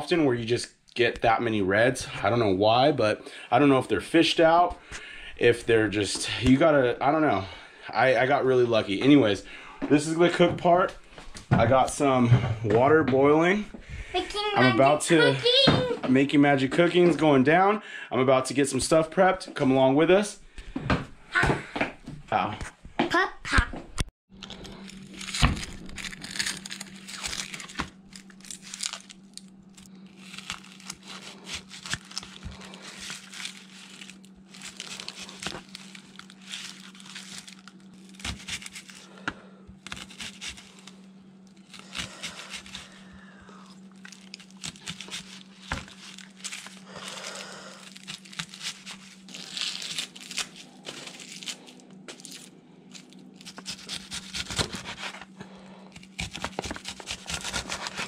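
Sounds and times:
onion skin crinkling and tearing: 0:24.4 - 0:58.0
knife crunching through onion: 0:24.7 - 0:41.0, 0:41.6 - 0:43.1, 0:43.9 - 0:58.0.

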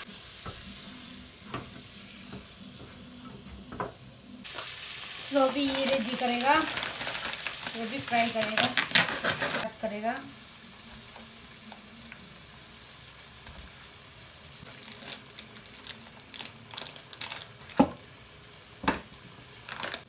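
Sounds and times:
food sizzling in a pot: 0:00.0 - 0:20.0
plastic packet rustling: 0:05.4 - 0:09.7, 0:14.6 - 0:18.0, 0:19.5 - 0:20.0.

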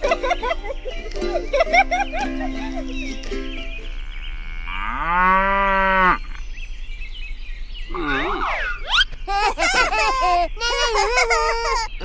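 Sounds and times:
cow mooing: 0:04.3 - 0:06.2.

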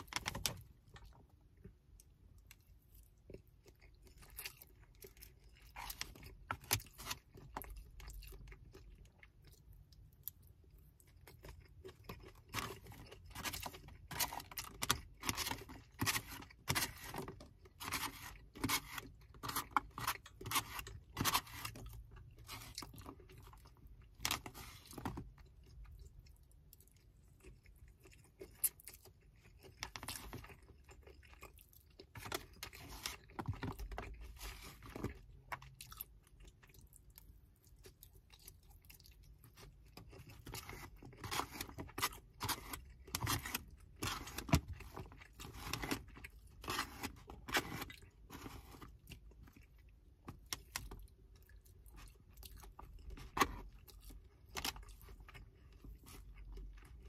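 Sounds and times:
chewing and crunching food: 0:00.0 - 0:57.0
plastic fork scraping container: 0:12.5 - 0:23.0.

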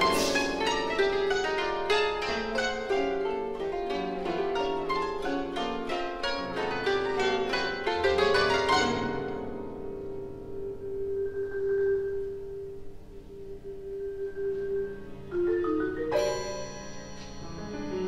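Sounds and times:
quick plucked koto notes: 0:00.0 - 0:10.4
chamber orchestra held tone: 0:08.4 - 0:18.0.

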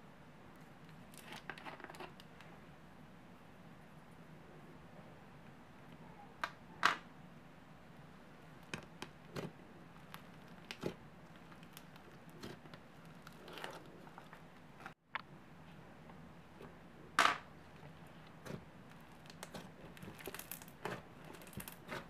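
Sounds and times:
slime crackling and popping: 0:10.0 - 0:13.6, 0:18.0 - 0:22.0.

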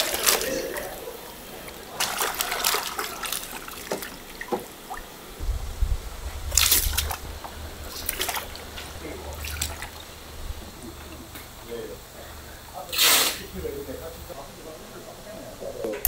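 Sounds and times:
water splashing in plastic tub: 0:00.0 - 0:05.4, 0:06.1 - 0:11.6
low steady hum: 0:00.0 - 0:16.0.

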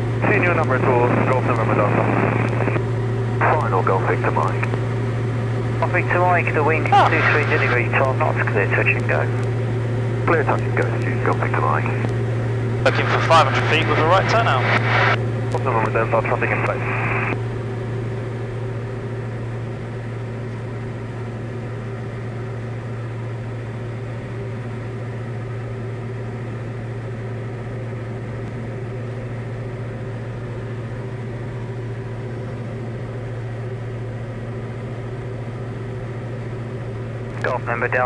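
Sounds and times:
aircraft engine droning: 0:00.0 - 0:38.0.

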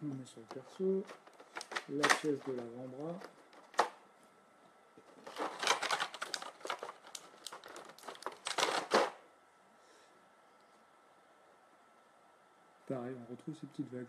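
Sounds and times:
small plastic parts clicking and rattling: 0:00.4 - 0:04.0, 0:05.0 - 0:09.2.

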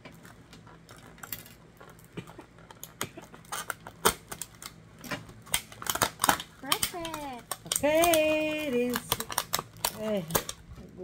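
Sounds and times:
plastic packaging crinkling: 0:03.3 - 0:11.0.

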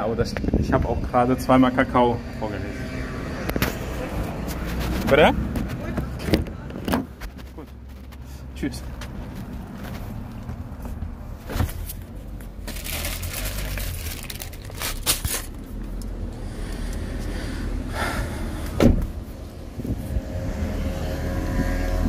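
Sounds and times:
phone rustling against jacket: 0:04.4 - 0:05.9.

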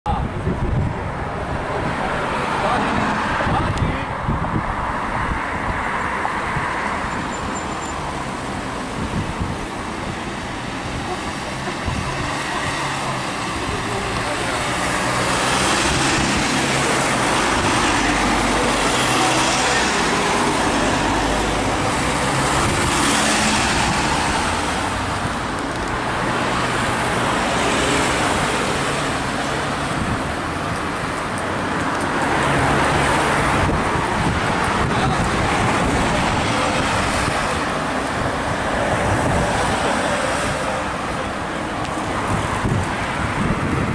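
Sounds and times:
cars and vans passing: 0:00.1 - 0:43.9.

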